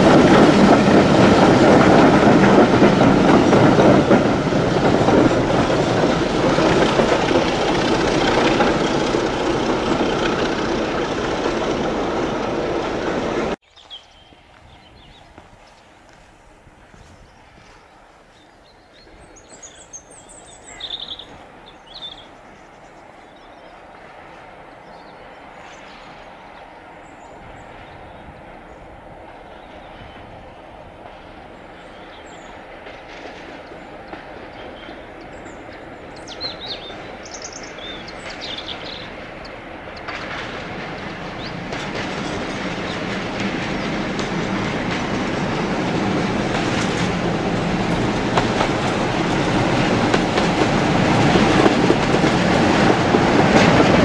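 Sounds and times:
diesel locomotive engine: 0.0s - 13.6s, 19.0s - 54.0s
train wheels on rails: 0.0s - 13.6s, 14.5s - 54.0s
birds chirping: 16.9s - 53.9s.

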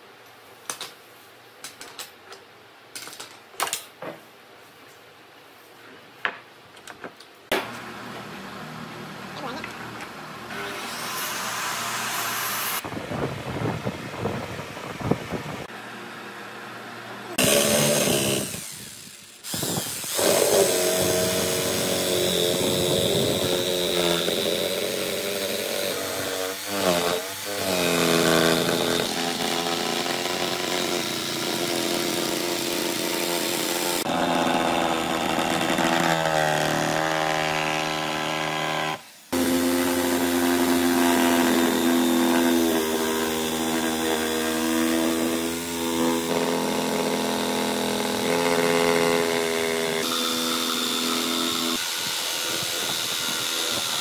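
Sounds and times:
jigsaw cutting wood: 17.3s - 54.0s.

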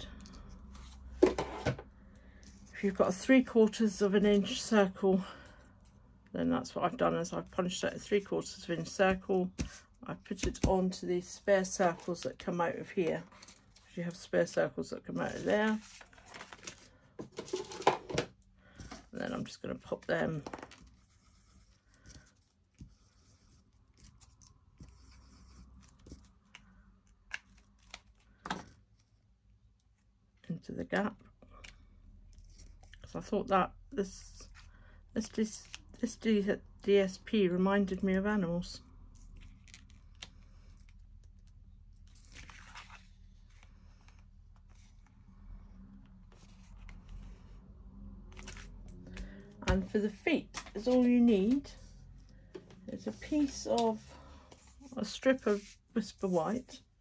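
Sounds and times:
paper and card rustling: 11.6s - 28.8s, 42.0s - 45.1s, 48.3s - 56.8s.

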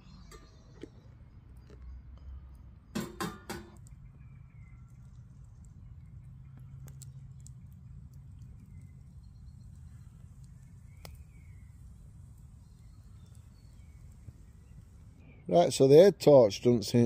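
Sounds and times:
wood fire crackling: 1.2s - 16.6s
sharp pops of fire: 2.9s - 4.0s, 6.2s - 15.2s.

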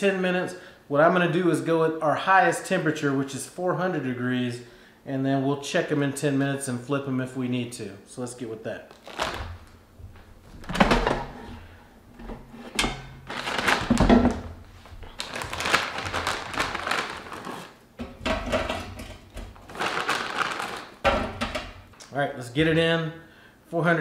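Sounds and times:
plastic bag crinkling: 8.9s - 9.7s, 13.2s - 17.8s, 19.4s - 21.0s.

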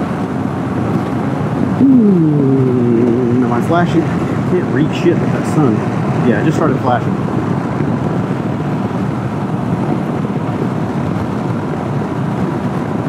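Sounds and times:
motorcycle engine running: 0.0s - 5.2s
wind and road noise: 0.0s - 13.0s.

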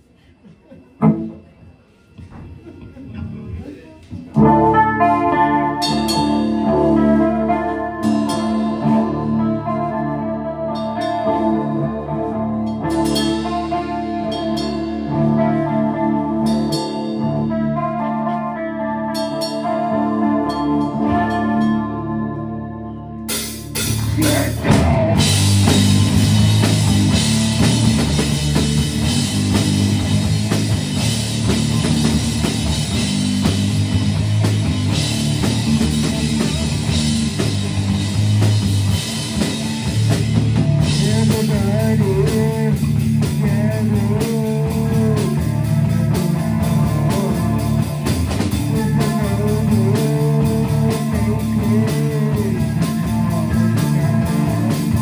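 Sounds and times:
rock band playing: 1.0s - 2.7s, 4.1s - 55.0s
person singing: 4.4s - 26.2s, 40.8s - 55.0s.

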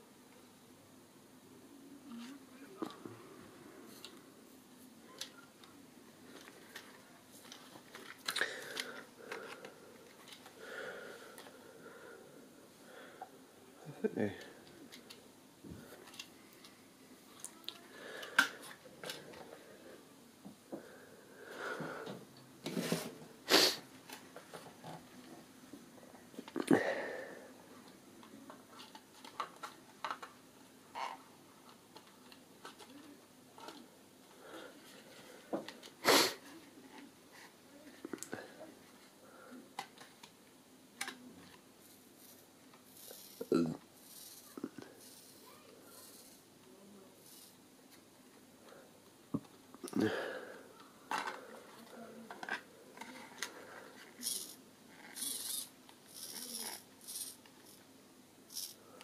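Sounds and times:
plastic toy clicking and clattering: 28.8s - 30.3s, 41.0s - 41.2s, 41.9s - 46.4s, 47.2s - 47.5s, 51.1s - 57.8s, 58.5s - 58.8s.

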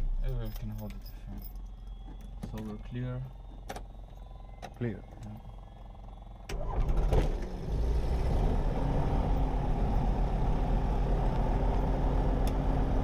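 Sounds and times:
aircraft engine idling: 3.3s - 7.0s
starter cranking engine: 5.1s - 7.6s.

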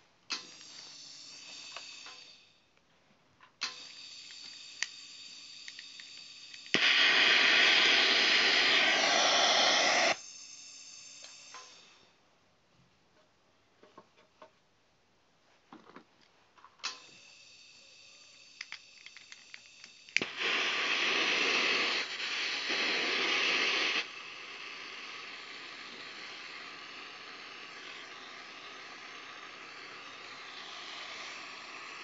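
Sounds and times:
steady high whine: 0.0s - 2.8s, 3.6s - 12.2s, 16.9s - 32.0s
hiss of gas: 3.6s - 10.3s, 17.0s - 32.0s.

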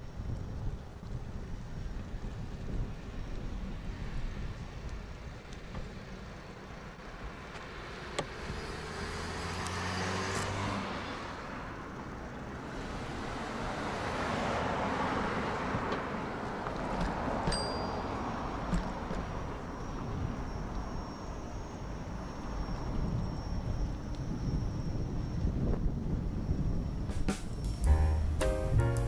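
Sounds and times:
cars passing: 7.4s - 17.4s.

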